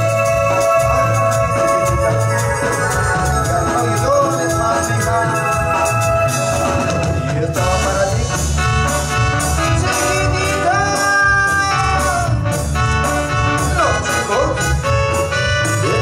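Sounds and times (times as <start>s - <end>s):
drum kit beat: 0.0s - 16.0s
keyboard: 0.0s - 16.0s
live latin dance music: 0.0s - 16.0s.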